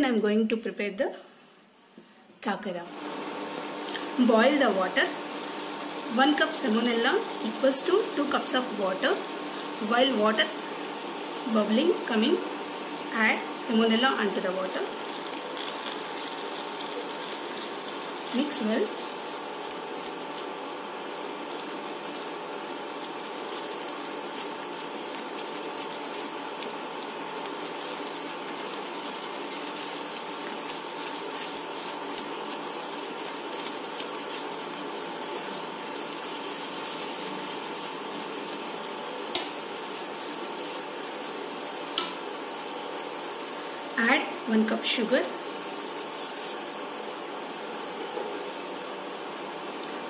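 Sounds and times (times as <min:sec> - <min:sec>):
steady hiss: 0:03.0 - 0:44.0
spatula stirring in a pan: 0:10.4 - 0:42.3, 0:44.9 - 0:46.9.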